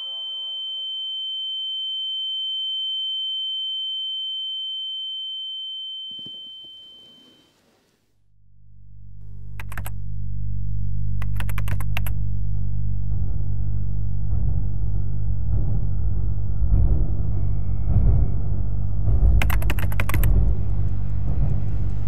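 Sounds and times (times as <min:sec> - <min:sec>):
low droning hum: 0:08.3 - 0:22.0
rapid clicking bursts: 0:09.6 - 0:09.9, 0:11.2 - 0:12.2, 0:19.4 - 0:20.3.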